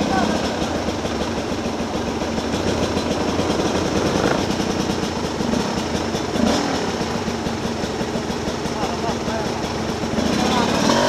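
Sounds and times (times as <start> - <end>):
dirt bike engines droning: 0.0 - 11.0.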